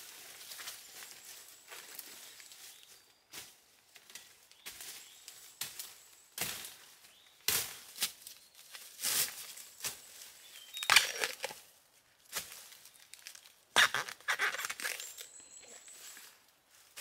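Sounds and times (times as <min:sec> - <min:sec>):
hand tool scraping through dry leaves: 0:04.6 - 0:11.6, 0:12.3 - 0:17.0.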